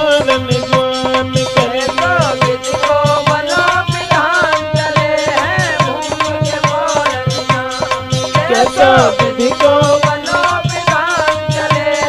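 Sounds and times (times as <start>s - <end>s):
tabla beating: 0.0s - 12.0s
bending melody line: 8.3s - 10.1s.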